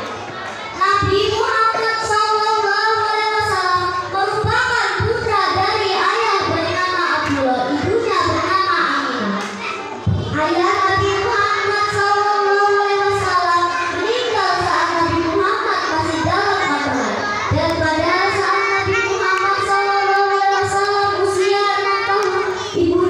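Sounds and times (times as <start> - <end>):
girl singing into microphone: 10.0 - 23.0.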